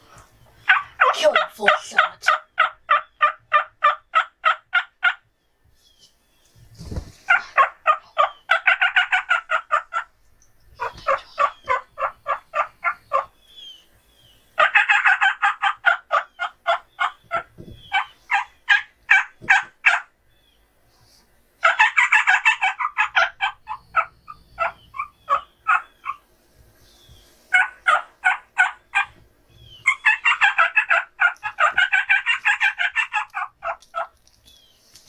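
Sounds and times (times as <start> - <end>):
turkey yelping: 0.6 - 5.2, 7.3 - 10.1, 10.8 - 13.9, 14.6 - 20.1, 21.6 - 26.3, 27.5 - 34.2.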